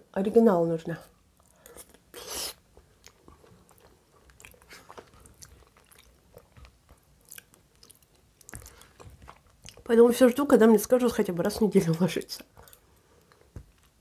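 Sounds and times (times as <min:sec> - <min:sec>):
mouth chewing wet smacks: 0:01.4 - 0:09.9.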